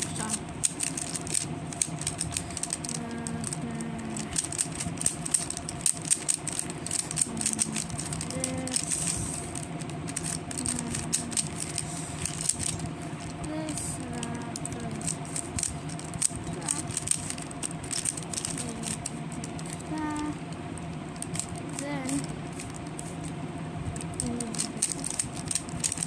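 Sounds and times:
puzzle cube clicking as turned: 0.0 - 20.3, 24.1 - 26.0.

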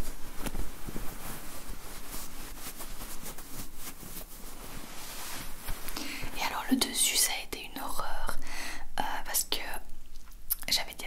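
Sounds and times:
denim fabric rubbed and scratched: 0.0 - 6.4.

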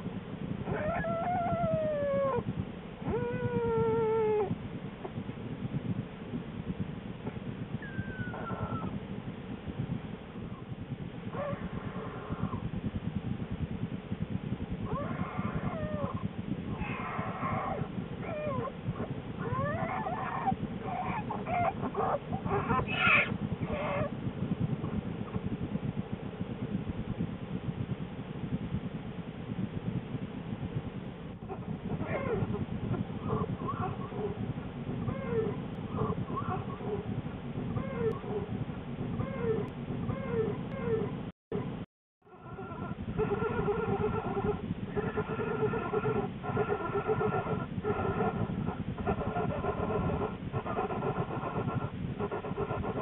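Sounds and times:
low pulsing hum of nursing cubs: 0.0 - 53.0
bear cubs squalling: 19.4 - 24.1.

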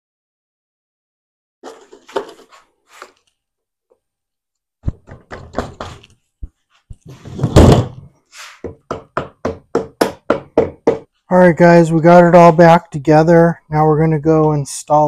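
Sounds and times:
rubber mallet knocking: 4.8 - 6.1, 8.6 - 11.1.

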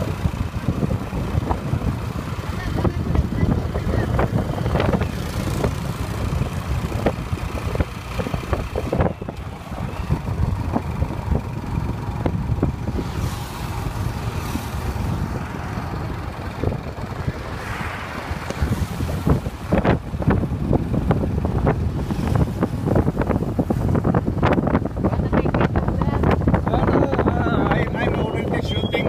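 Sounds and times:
motorcycle engine running: 0.0 - 17.5
wind rumble on microphone: 0.0 - 29.0.

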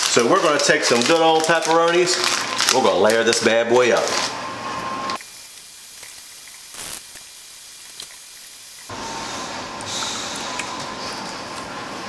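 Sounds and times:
background hiss: 5.2 - 8.9.

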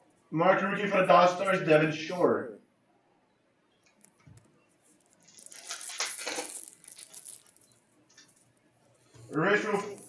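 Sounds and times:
trading cards rustling: 4.9 - 8.4.

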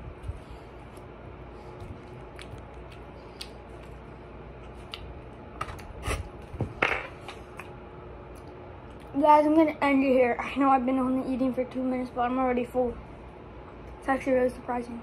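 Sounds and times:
person chewing food: 0.2 - 5.9.

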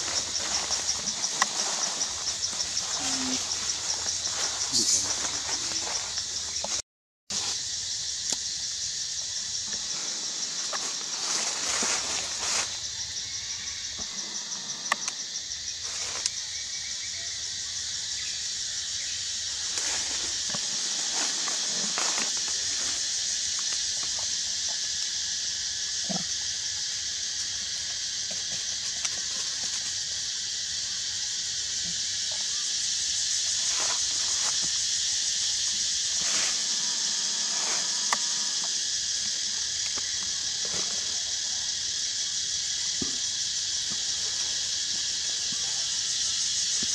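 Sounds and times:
insect chorus drone: 0.0 - 46.9.

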